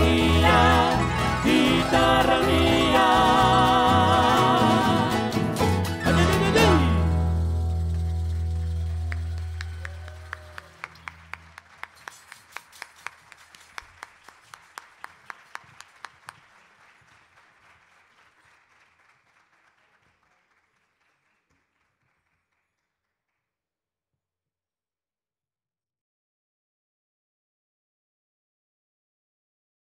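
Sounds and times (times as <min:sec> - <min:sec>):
audience applauding: 0:00.0 - 0:07.0, 0:07.9 - 0:22.9
person clapping evenly: 0:08.3 - 0:22.4.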